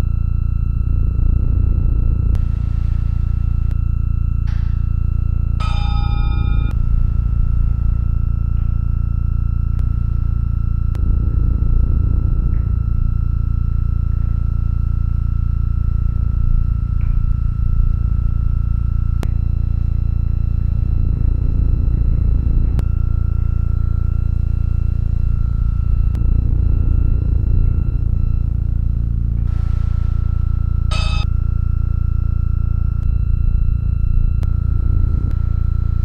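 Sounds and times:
deep steady hum: 0:00.0 - 0:36.0
thin high tone: 0:02.6 - 0:09.2, 0:29.6 - 0:32.2.

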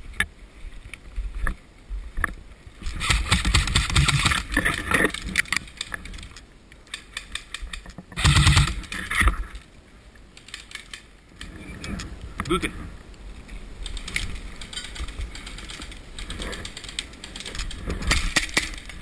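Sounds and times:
gear rattling: 0:13.8 - 0:19.0.

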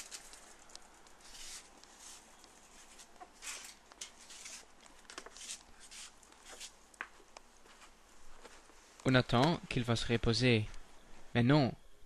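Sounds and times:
bicycle scrapes: 0:01.2 - 0:02.2.

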